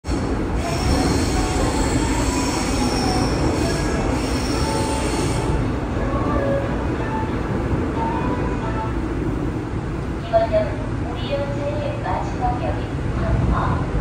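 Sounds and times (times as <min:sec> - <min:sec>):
subway train low rumble: 0:00.0 - 0:14.0
wheel squeal on rails: 0:00.6 - 0:05.6.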